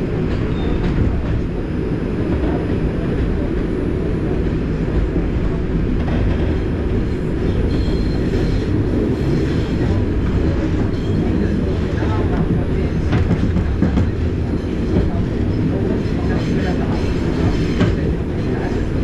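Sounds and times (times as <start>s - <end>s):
train wheels rumbling on rail: 0.0s - 19.0s.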